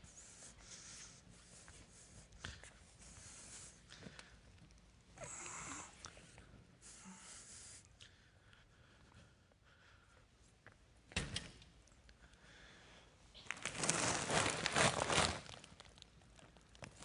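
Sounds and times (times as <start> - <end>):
soft hissing noises: 0.0 - 10.9.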